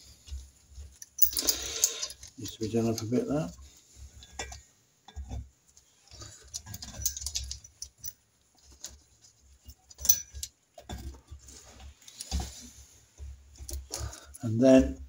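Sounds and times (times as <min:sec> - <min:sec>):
metal tool clicks and rattles: 0:01.0 - 0:03.1, 0:06.5 - 0:08.2, 0:09.9 - 0:10.6.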